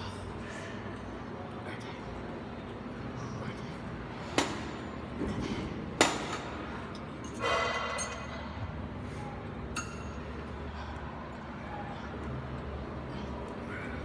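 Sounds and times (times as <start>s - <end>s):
metallic ringing clink: 7.2s - 8.5s, 9.7s - 10.4s.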